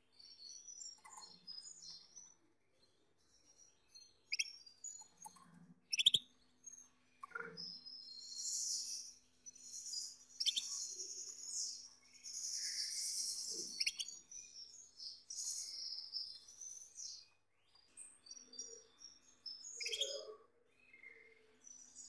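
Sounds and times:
canary trilling song: 4.2 - 7.8, 8.5 - 17.4, 18.4 - 20.5.

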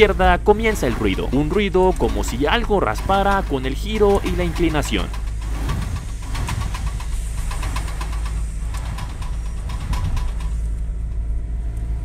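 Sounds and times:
drive shaft joint clicking: 0.0 - 10.8
engine and road rumble: 0.0 - 12.0.

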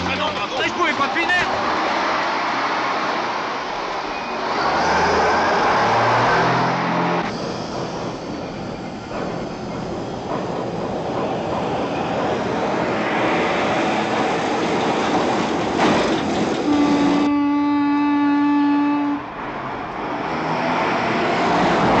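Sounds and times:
bridge wheels rumbling and squealing: 0.0 - 17.3.

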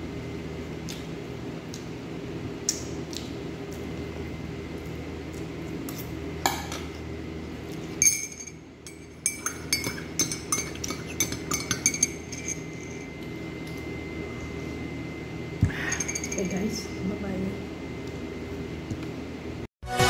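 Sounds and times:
steady low hum: 0.0 - 19.7
spoon clinking on plate: 8.0 - 13.1.

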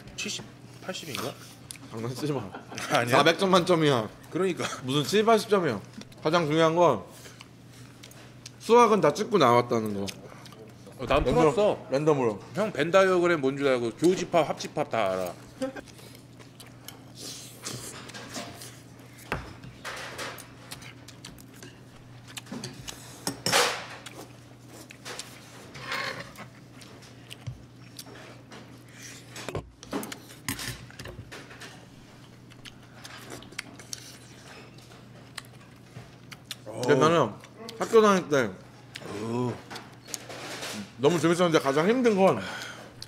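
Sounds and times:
steady low hum: 0.0 - 41.0
eating sounds: 32.1 - 37.9.

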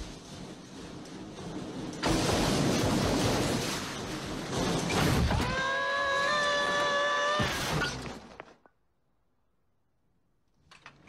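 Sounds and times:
tool chest clattering down stairs: 0.0 - 5.7.

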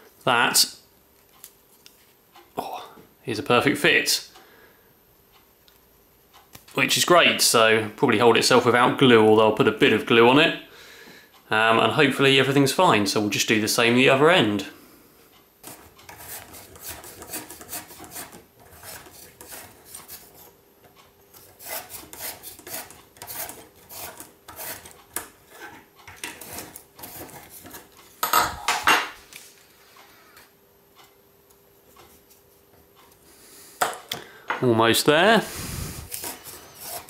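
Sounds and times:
reamer rasping in plastic: 35.5 - 37.0.

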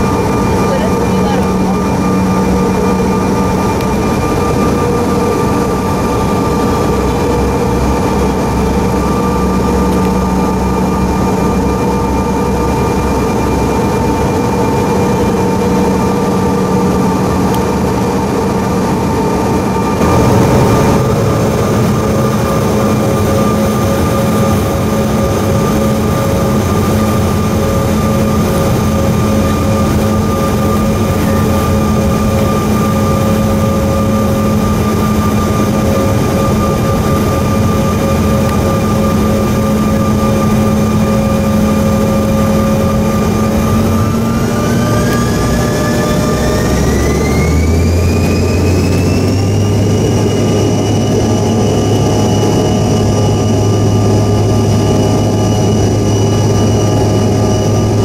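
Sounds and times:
jet engines whining over rumble: 0.0 - 58.0.

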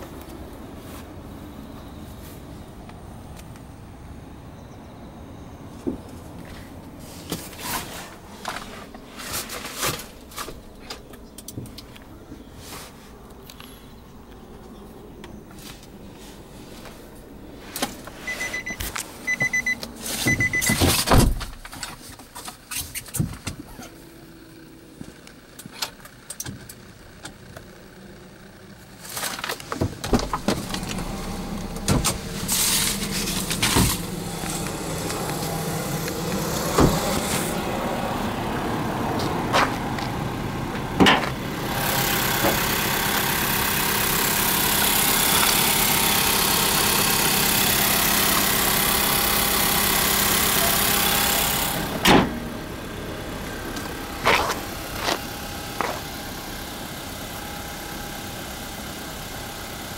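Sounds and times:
short high electronic beeps: 18.3 - 20.8
clicks and knocks inside car cabin: 18.8 - 24.0, 29.4 - 32.3.

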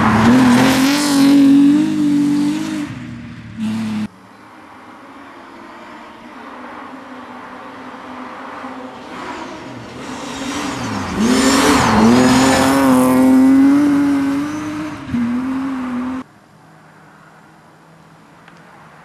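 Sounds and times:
rally car engine at high revs: 0.0 - 4.1, 9.0 - 16.2.

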